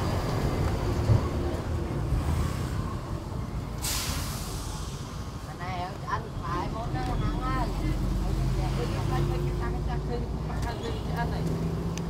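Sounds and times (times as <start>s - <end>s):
street market background rumble: 0.0s - 12.0s
burst of hiss: 3.8s - 5.2s.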